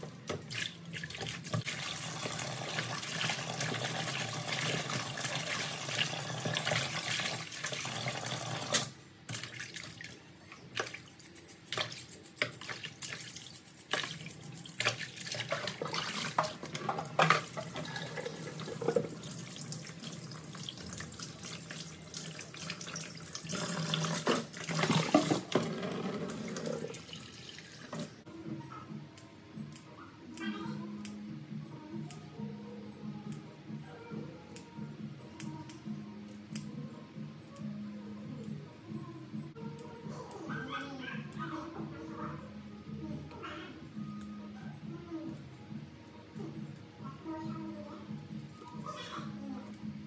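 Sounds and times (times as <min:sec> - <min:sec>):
tap water running into basin: 0:00.0 - 0:10.2, 0:11.8 - 0:28.2
water splashes and drips: 0:00.0 - 0:28.2.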